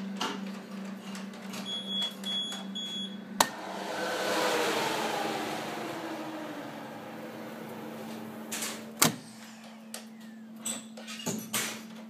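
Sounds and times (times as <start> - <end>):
oven hum: 0.0 - 12.0
oven beeping: 1.6 - 3.3
hot-air fan whirring: 3.3 - 10.7.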